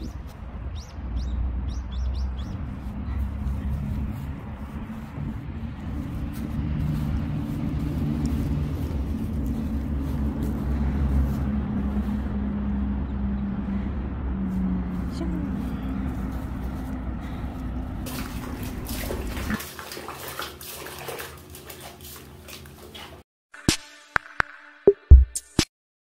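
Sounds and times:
bird chirps: 0.0 - 3.7
engine hum: 0.0 - 23.2
traffic rumble: 0.0 - 23.2.

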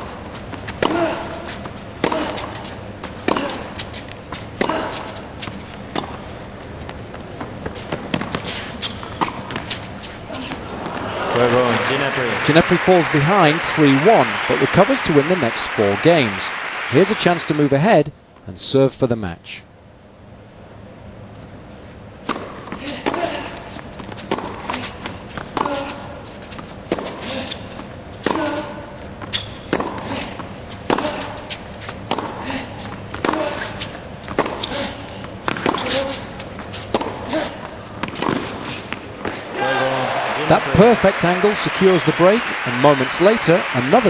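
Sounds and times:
footsteps on court: 0.0 - 17.8, 22.2 - 44.0
tennis ball hit by racket: 0.6 - 3.7, 22.2 - 27.3, 28.2 - 32.4, 33.1 - 37.3, 38.0 - 39.4.

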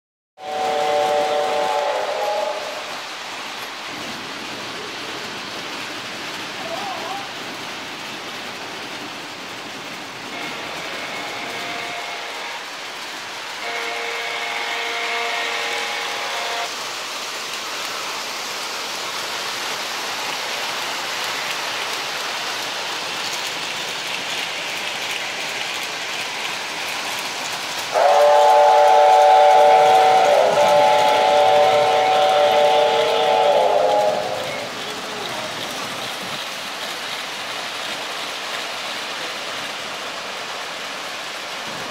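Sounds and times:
toy train whistle: 0.4 - 3.0, 10.3 - 12.7, 13.6 - 16.7, 27.9 - 34.7
model trains rattling: 0.4 - 16.7, 20.7 - 36.4.

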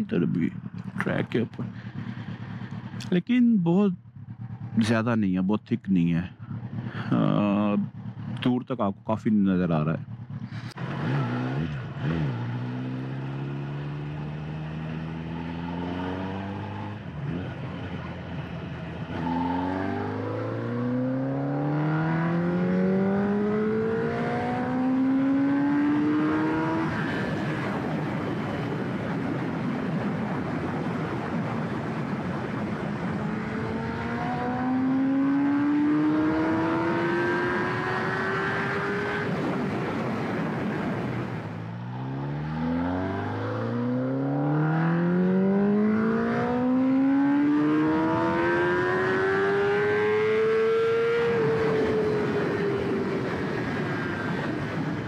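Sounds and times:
motorcycle engine revving: 0.3 - 3.2, 4.0 - 5.2, 6.2 - 8.6, 9.8 - 29.3, 30.3 - 55.0
wind rush: 26.6 - 34.5, 37.7 - 42.2, 51.0 - 55.0.

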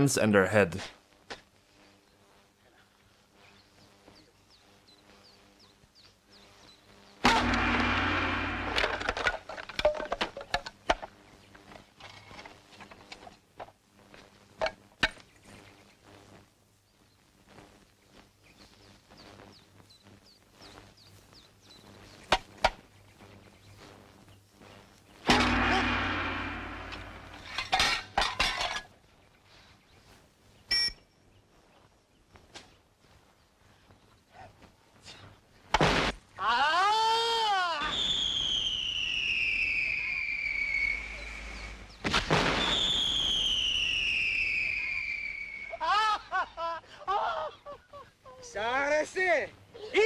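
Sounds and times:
small bird chirping: 3.4 - 7.2, 16.8 - 25.2
loud crash: 7.3 - 9.3, 25.3 - 27.8
descending slide whistle: 37.8 - 41.8, 42.6 - 45.8.

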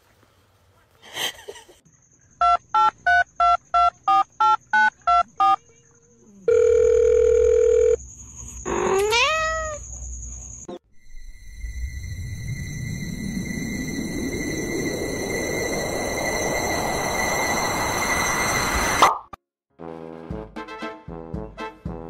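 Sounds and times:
steady phone tone: 6.5 - 8.0
cat meowing: 8.8 - 9.8.

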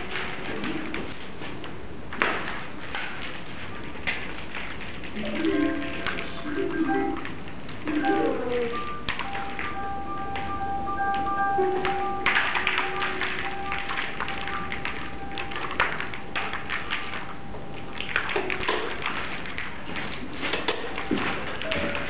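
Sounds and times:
rapid tapping and clicking: 0.0 - 22.0
faint sustained background tones: 7.9 - 19.0.

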